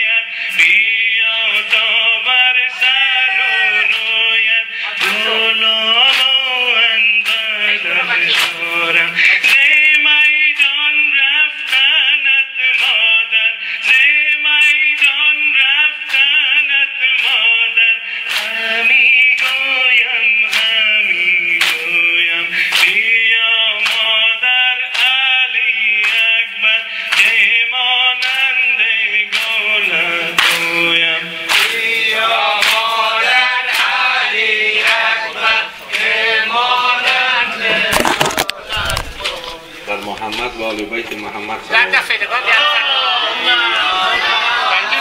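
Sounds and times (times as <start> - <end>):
men chanting a lament: 0.0 - 45.0
rhythmic chest-beating strikes: 2.8 - 11.0, 17.1 - 42.2.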